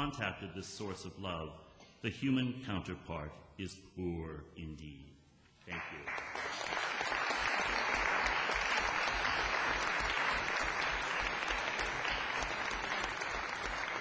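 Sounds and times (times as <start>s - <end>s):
audience applauding: 5.7s - 14.0s.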